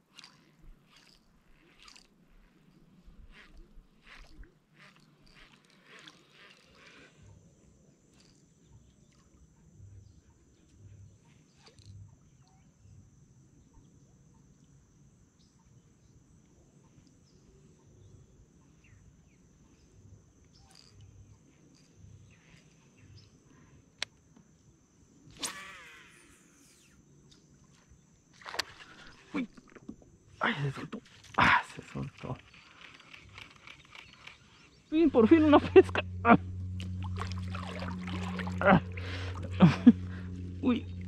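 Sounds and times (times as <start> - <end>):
high-pitched insect chirr: 0.0 - 41.0.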